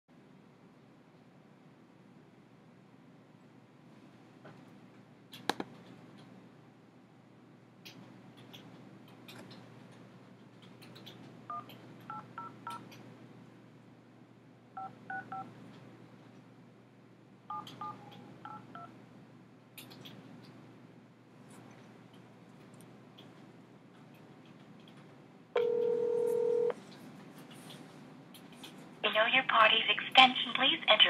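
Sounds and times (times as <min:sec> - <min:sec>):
touch-tone keypad beeps: 0:14.8 - 0:15.5, 0:17.5 - 0:18.9.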